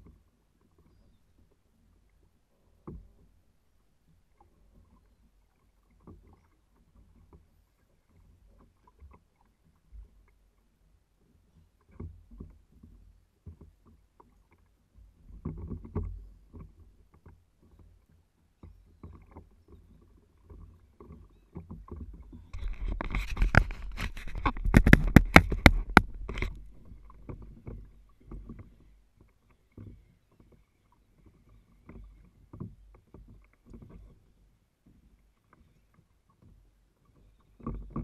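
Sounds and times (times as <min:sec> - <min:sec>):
waves lapping against kayak hull: 0:00.0 - 0:38.0
rustling and handling noise: 0:22.6 - 0:26.7.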